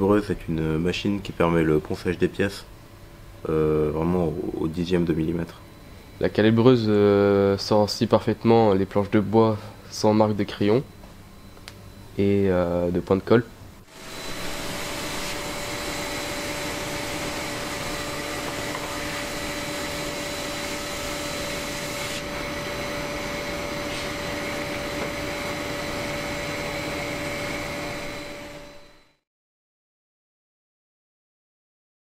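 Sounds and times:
wide-belt sander running: 0:13.9 - 0:29.0.

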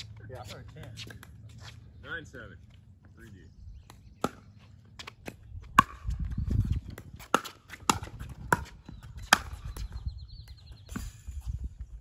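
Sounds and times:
ball bouncing on hard court: 0:03.9 - 0:10.0.

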